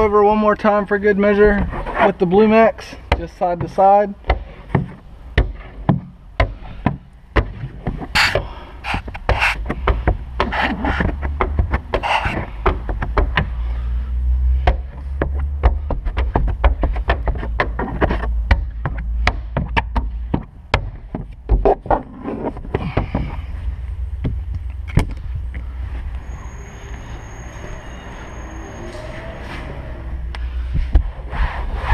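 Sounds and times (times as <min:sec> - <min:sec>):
squeegee scraping on glass: 0:10.4 - 0:12.7
low rumble: 0:22.1 - 0:31.9.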